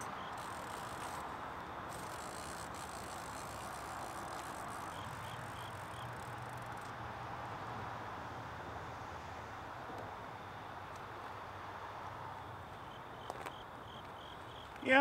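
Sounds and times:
fishing reel cranking: 0.0s - 6.9s.

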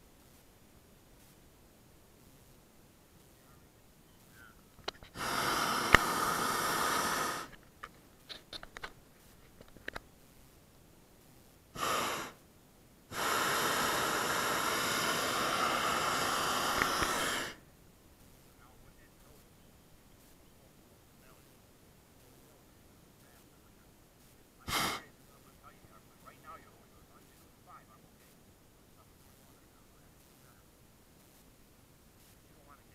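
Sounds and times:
propane burner blasts: 4.9s - 7.6s, 11.7s - 12.4s, 13.1s - 17.6s, 24.2s - 27.5s
small clicks: 7.5s - 10.1s.

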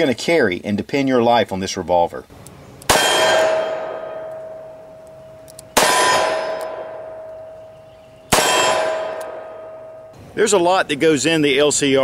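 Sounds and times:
steel target plate ringing: 2.9s - 5.0s, 5.8s - 7.6s, 8.3s - 10.2s.

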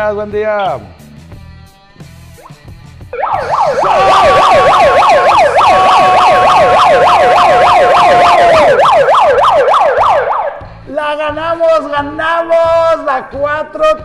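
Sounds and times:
steady held tone: 3.2s - 8.9s
megaphone siren yelping: 3.2s - 10.7s.

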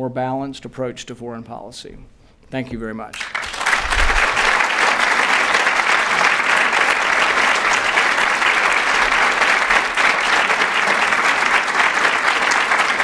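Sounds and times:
audience applauding: 3.1s - 13.0s.

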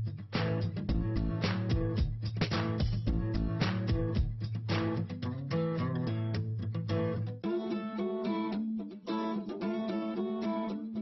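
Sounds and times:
bass line: 0.0s - 5.0s
strummed guitar: 0.0s - 11.0s.

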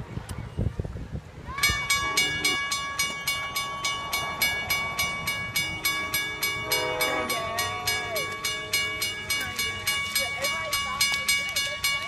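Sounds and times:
crossing warning bell ringing: 1.5s - 12.0s
train horn: 1.6s - 10.7s.

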